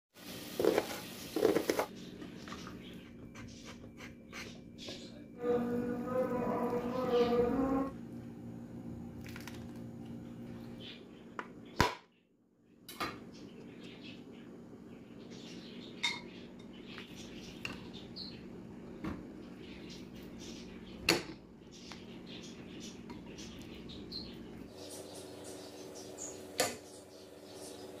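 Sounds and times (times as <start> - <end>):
low hum: 5.1 - 11.3.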